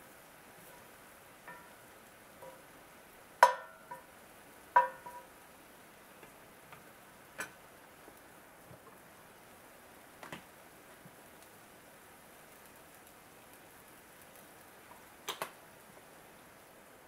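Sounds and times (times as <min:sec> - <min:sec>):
frying sizzle: 0:00.0 - 0:17.0
wooden spatula knocking on skillet: 0:01.4 - 0:01.8, 0:02.4 - 0:02.6, 0:03.4 - 0:04.1, 0:04.7 - 0:05.3.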